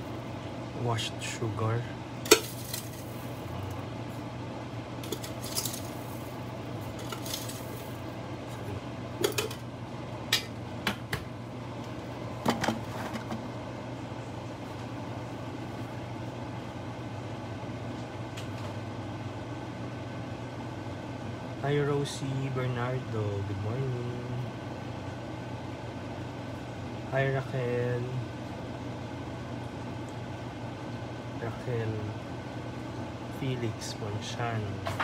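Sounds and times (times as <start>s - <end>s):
steady low hum: 0.0s - 35.0s
kitchen utensils clinking: 5.0s - 6.0s, 7.0s - 7.9s, 9.2s - 9.6s.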